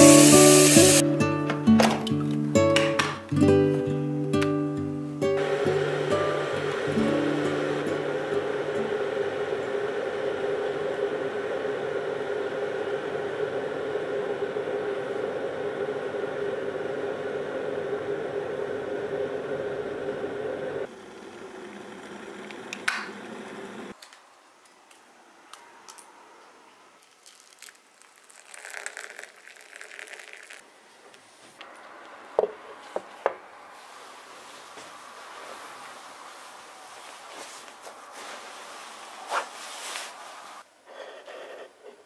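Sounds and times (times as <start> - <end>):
steady hum: 5.2 - 24.0.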